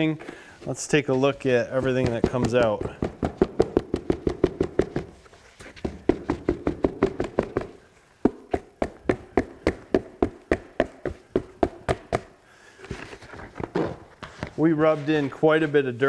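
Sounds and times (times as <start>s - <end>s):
hand slapping carpet: 1.8s - 12.4s.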